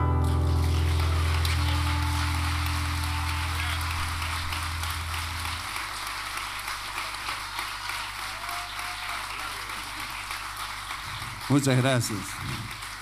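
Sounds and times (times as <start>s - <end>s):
band holding low note: 0.0s - 5.9s
audience applauding: 0.0s - 13.0s.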